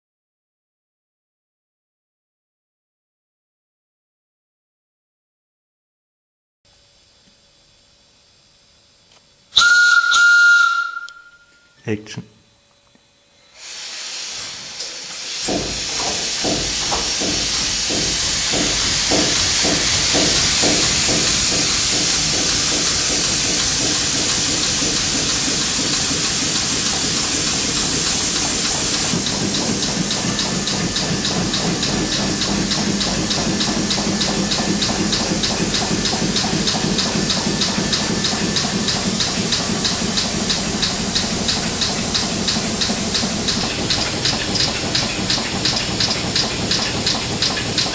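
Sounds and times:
steam engine hissing: 9.6 - 11.6, 13.5 - 47.9
steam engine strokes: 9.6 - 11.6, 13.5 - 47.9.

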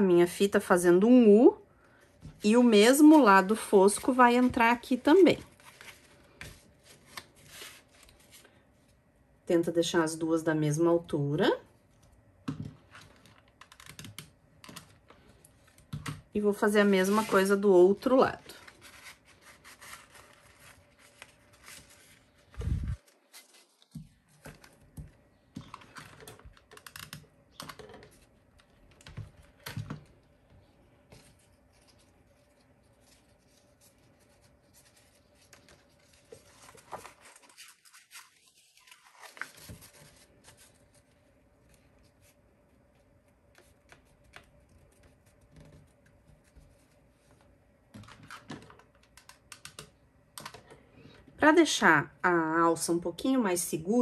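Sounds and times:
paper and ribbon rustling: 16.7 - 24.8, 31.1 - 42.4.

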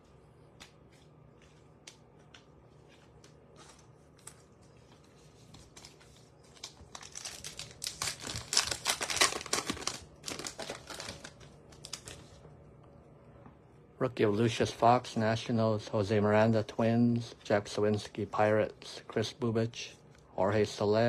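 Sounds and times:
wrapper crinkling and tearing: 3.6 - 12.4.

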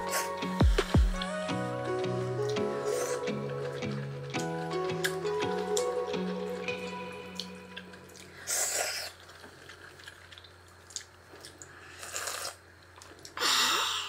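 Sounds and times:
person slurping noodles: 8.4 - 9.2, 11.8 - 12.6.

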